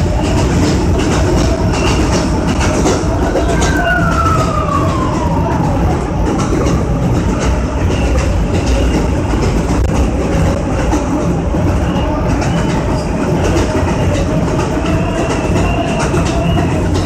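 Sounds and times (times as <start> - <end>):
high whine sliding down: 0.0 - 8.1
subway train rumbling on track: 0.0 - 17.0.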